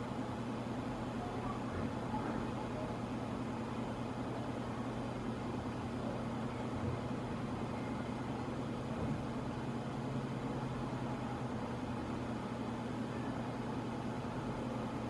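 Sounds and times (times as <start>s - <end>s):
electric fan air rush: 0.0s - 1.2s.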